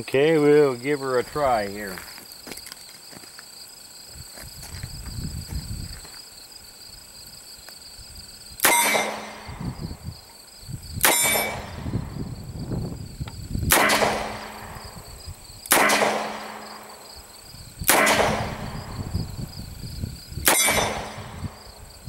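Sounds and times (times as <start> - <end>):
revolver gunshots: 8.6 - 9.6, 11.0 - 12.1, 13.7 - 15.0, 15.6 - 17.1, 17.8 - 19.0, 20.4 - 21.6.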